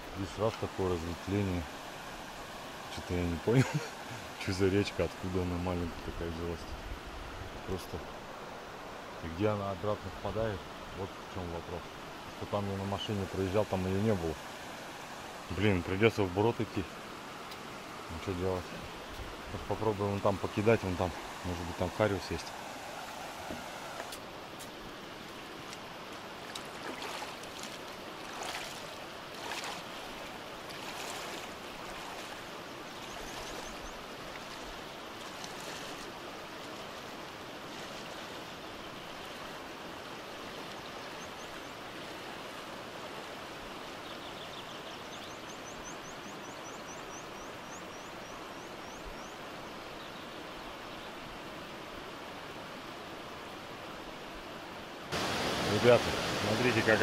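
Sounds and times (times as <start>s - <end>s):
river running over stones: 0.0s - 57.0s
splashing footsteps in water: 25.6s - 32.4s.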